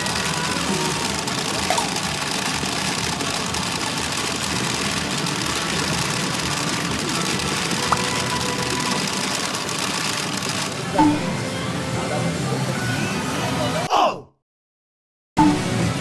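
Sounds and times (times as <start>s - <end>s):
pachinko machines running: 0.0s - 12.5s.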